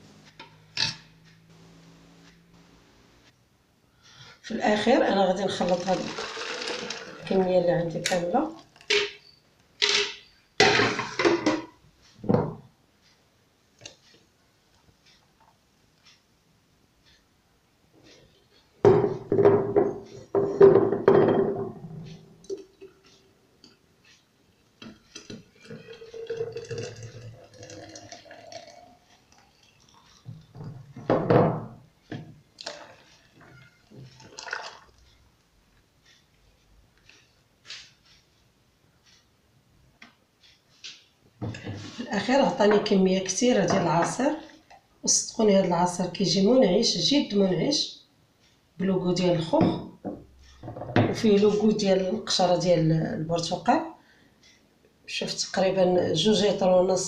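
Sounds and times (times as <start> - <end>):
containers knocking: 5.4 - 7.5
juice pouring into pitcher: 5.5 - 7.5, 25.4 - 30.6, 32.6 - 35.0.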